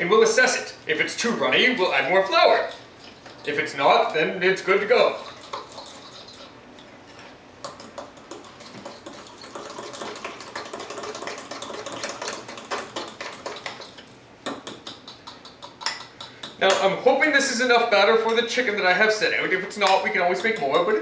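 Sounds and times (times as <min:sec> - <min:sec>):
fork beating batter in glass bowl: 0:07.6 - 0:16.8, 0:19.8 - 0:21.0.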